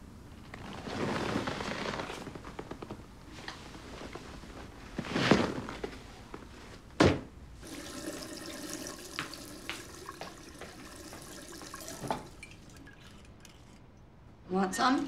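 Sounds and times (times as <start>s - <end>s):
liquid pouring: 7.6s - 13.8s.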